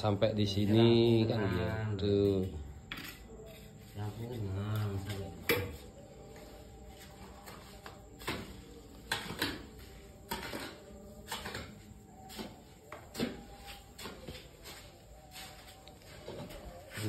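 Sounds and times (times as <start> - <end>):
trowel scraping and knocking bucket: 2.9 - 3.9, 7.4 - 14.8.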